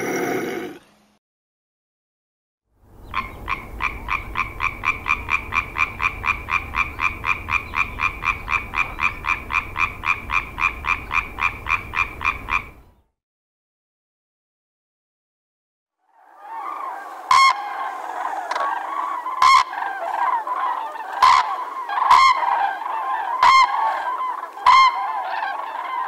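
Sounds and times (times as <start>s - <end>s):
tree frog croaking: 3.1s - 12.8s, 17.3s - 17.7s, 18.4s - 25.8s.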